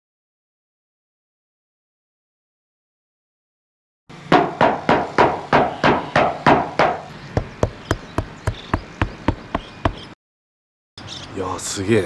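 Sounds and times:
knuckles knocking on metal roof: 4.3 - 10.1.

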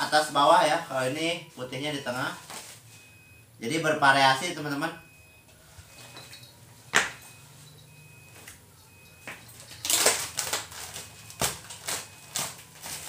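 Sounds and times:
plastic bag crinkling: 9.4 - 13.0.

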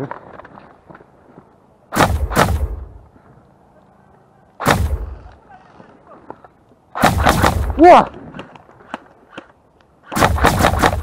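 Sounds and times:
airsoft rifle firing bursts: 7.0 - 7.8, 10.1 - 11.0.

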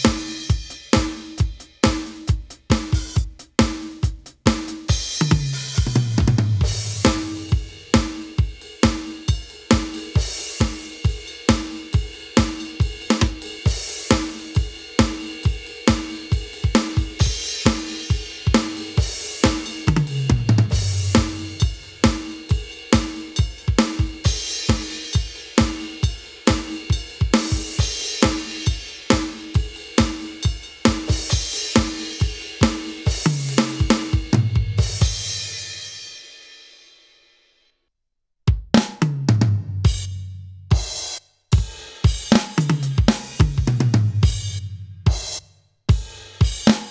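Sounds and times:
tom drum fill: 0.0 - 35.8
electronic drum kit groove: 0.0 - 36.6, 38.5 - 46.9.

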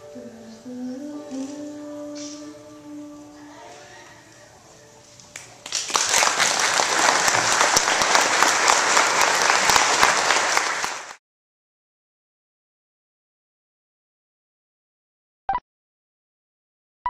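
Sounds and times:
audience applause: 5.3 - 11.2.

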